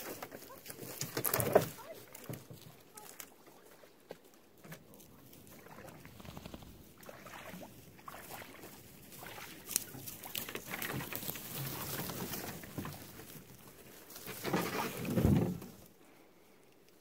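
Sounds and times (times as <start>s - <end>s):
crackles and knocks: 0.0s - 3.3s, 9.7s - 15.9s
canoe scraping through brush: 5.2s - 16.0s.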